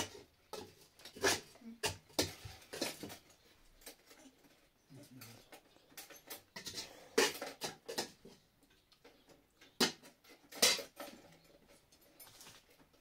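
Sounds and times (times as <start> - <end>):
utensils scraping plates: 5.2 - 8.3.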